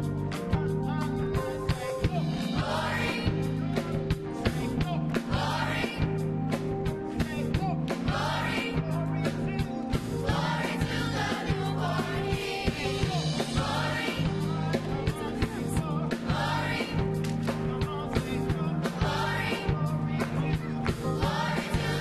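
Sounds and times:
backing music with beat and bass: 0.0s - 22.0s
choir singing: 2.3s - 6.3s, 7.9s - 9.0s, 10.1s - 17.2s, 18.2s - 22.0s.

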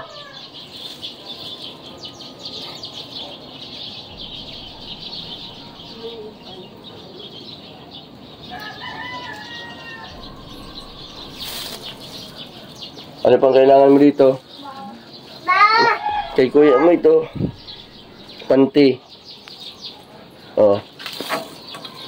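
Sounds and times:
bird calling: 0.0s - 20.8s
plastic bag and clothes rustling: 10.4s - 12.8s.

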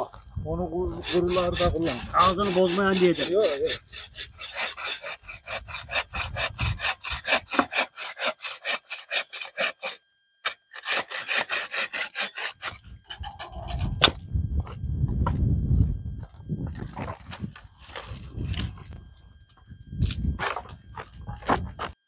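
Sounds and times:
hand saw cutting branch: 1.0s - 12.8s
low rumble: 12.8s - 21.8s.

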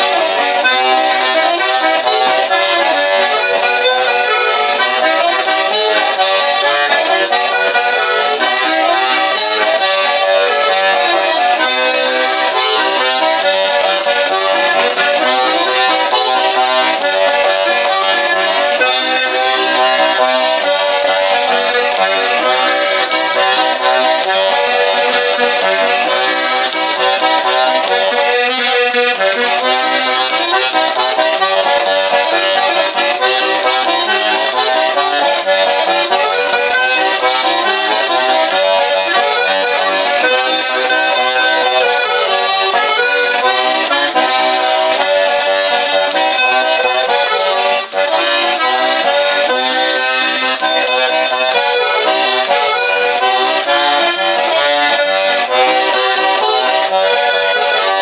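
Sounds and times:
button accordion playing tune: 0.0s - 58.0s.

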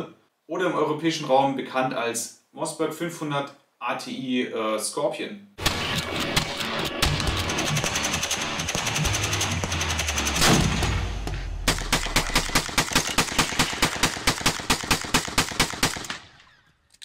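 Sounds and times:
rapid shotgun fire: 5.6s - 16.4s
loud bang: 9.7s - 12.6s.

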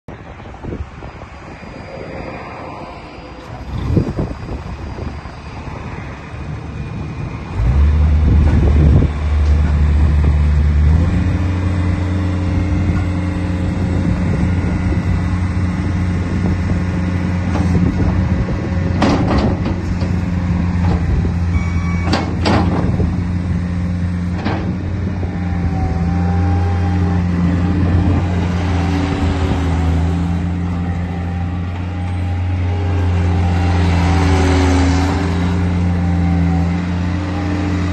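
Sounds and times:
diesel engine revving: 1.4s - 37.9s
loader knocks: 18.8s - 23.2s, 24.3s - 25.0s.

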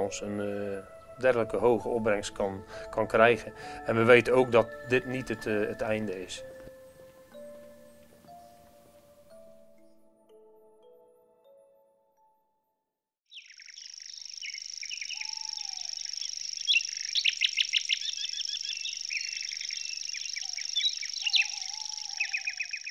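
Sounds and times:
birds chirping and twittering: 13.3s - 22.9s
lower whistled call: 13.3s - 22.9s.

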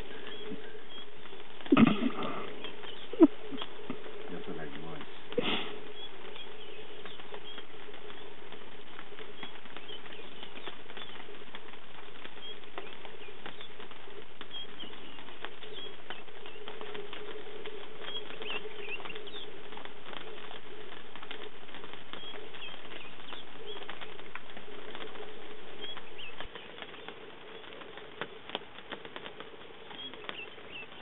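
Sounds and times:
light rain pattering: 0.0s - 31.0s
low hum: 0.0s - 31.0s.

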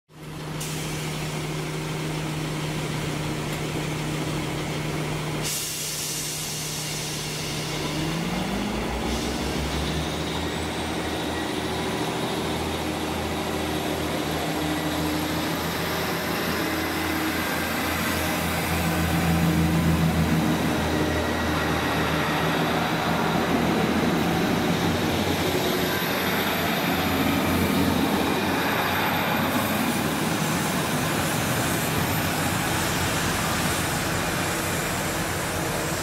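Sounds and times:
diesel train engine revving: 0.2s - 36.0s
train carriages passing: 6.4s - 36.0s
high whine climbing in pitch: 8.5s - 36.0s.

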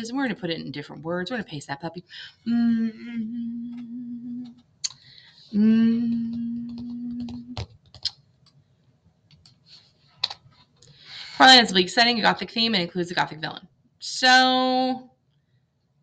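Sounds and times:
woman humming: 2.4s - 4.6s, 5.5s - 7.6s.

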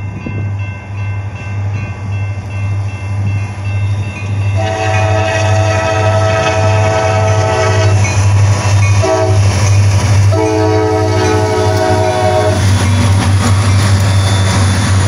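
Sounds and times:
locomotive air horn blasts: 4.6s - 8.1s, 8.9s - 9.5s, 10.3s - 12.6s.

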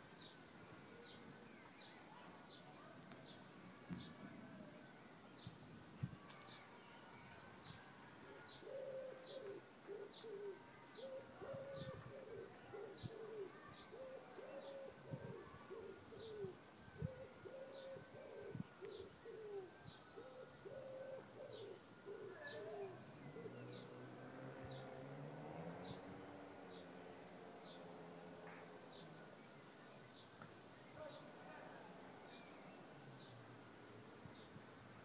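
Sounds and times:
pigeons cooing: 8.5s - 23.8s.

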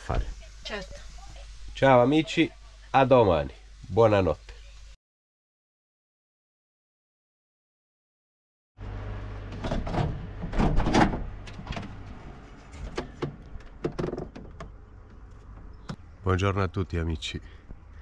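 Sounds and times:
low steady hum: 8.8s - 18.0s
sliding scraping handling noises: 11.5s - 15.7s.

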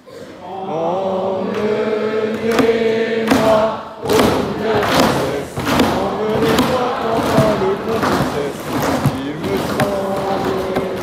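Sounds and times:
crowd singing in unison: 0.1s - 11.0s
rhythmic drum strikes: 2.4s - 11.0s.

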